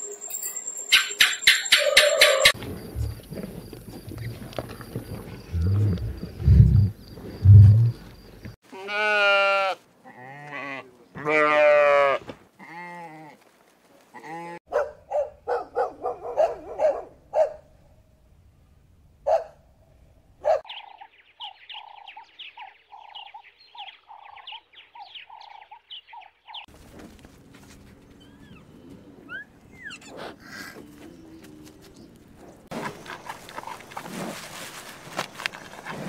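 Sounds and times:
quick repeated calls: 0.9 - 2.6
lamb bleating: 8.7 - 13.3.

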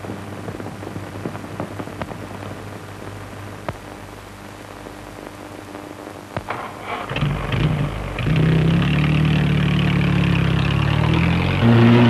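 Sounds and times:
crackles and clicks: 0.0 - 11.8
film soundtrack hiss: 0.0 - 12.0
low hum: 5.0 - 12.0.

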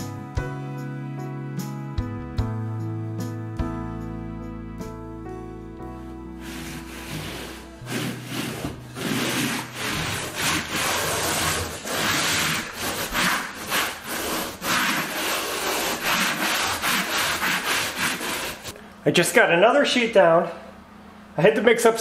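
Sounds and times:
block scraping over membrane: 6.4 - 18.7.

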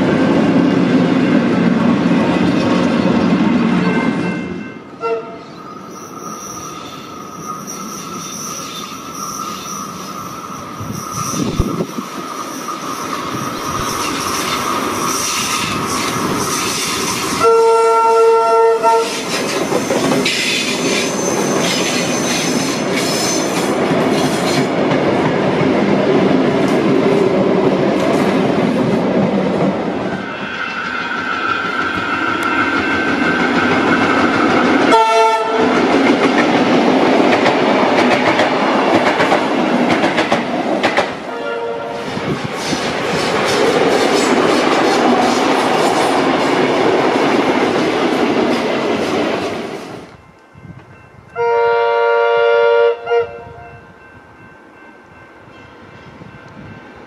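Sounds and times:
electric train running on track: 0.0 - 57.0
train horn: 3.8 - 5.6, 17.4 - 19.3, 34.9 - 35.8, 41.3 - 42.2, 51.3 - 53.9.

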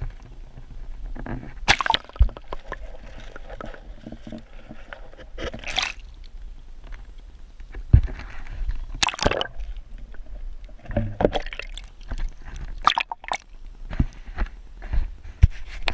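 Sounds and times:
water gurgling and sloshing: 1.0 - 7.3, 8.0 - 13.6
water splashing: 1.6 - 6.3, 8.9 - 13.6.

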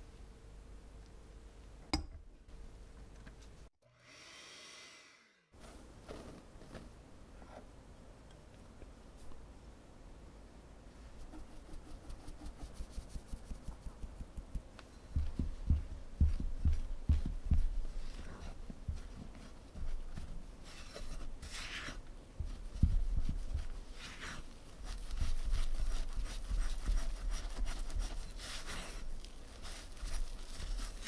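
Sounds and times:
metal mesh sieve tapping: 1.9 - 2.2.

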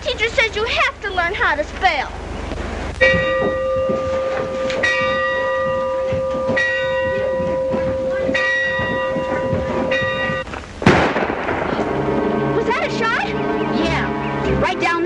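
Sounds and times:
school bell ringing: 3.0 - 10.5, 11.9 - 15.0.

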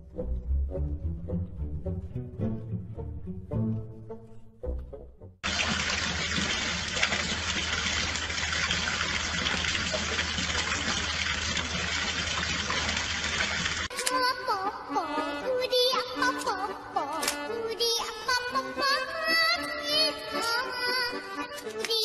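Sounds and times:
music: 0.0 - 5.5, 13.9 - 22.0
water gushing and splashing: 5.4 - 13.9.

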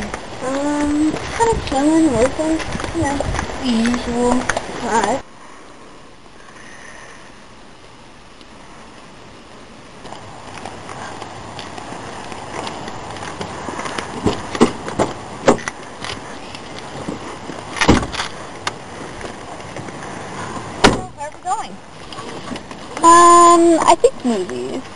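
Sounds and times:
rustling: 0.0 - 24.9
loud thump: 17.8 - 18.2, 20.8 - 21.2
car door opening: 17.8 - 18.3.

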